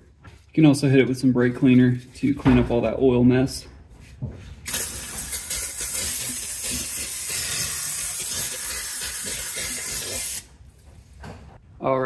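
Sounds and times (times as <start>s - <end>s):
aerosol spray hissing: 4.7s - 10.5s.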